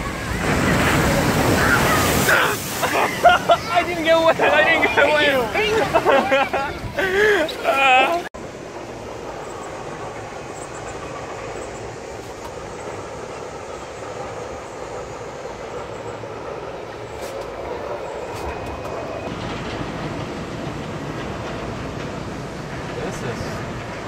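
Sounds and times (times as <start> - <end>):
gondola rumbling along cable: 0.0 - 24.0.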